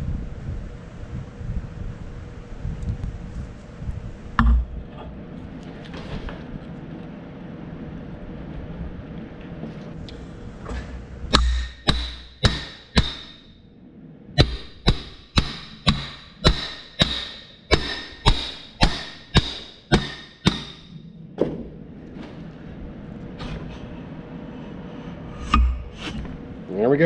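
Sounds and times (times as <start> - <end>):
hammer striking steel: 11.3 - 13.5, 14.4 - 21.0.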